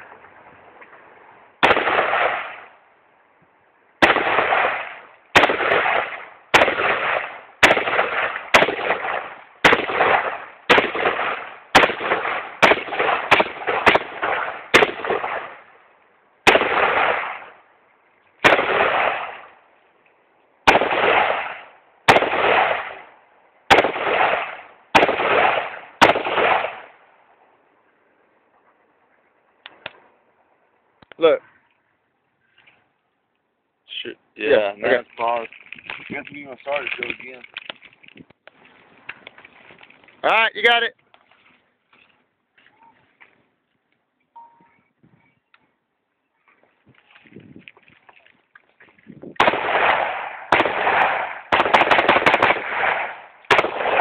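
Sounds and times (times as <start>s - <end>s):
rifle shots: 1.6s - 2.8s, 4.0s - 15.7s, 16.4s - 17.6s, 18.4s - 19.6s, 20.6s - 23.1s, 23.7s - 27.0s, 49.4s - 54.0s.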